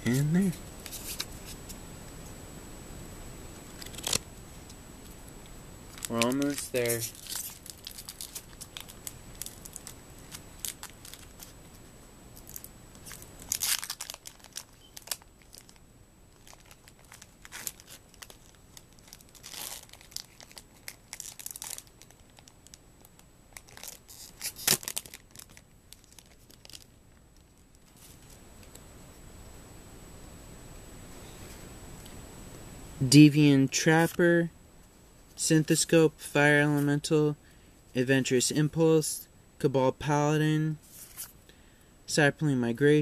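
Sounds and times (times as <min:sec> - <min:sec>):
foil wrapper tearing and crinkling: 0:03.8 - 0:04.2, 0:05.9 - 0:11.6, 0:12.4 - 0:15.8, 0:16.4 - 0:26.9.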